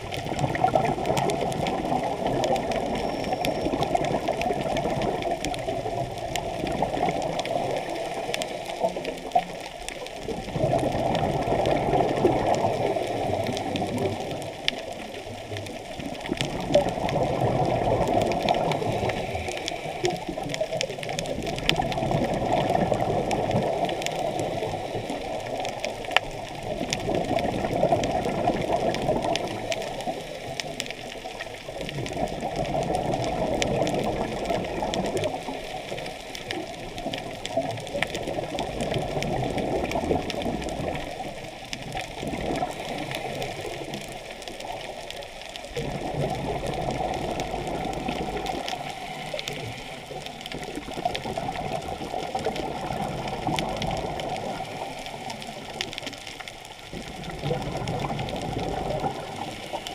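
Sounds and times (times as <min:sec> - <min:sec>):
muffled underwater rushing water: 0:00.0 - 0:59.9.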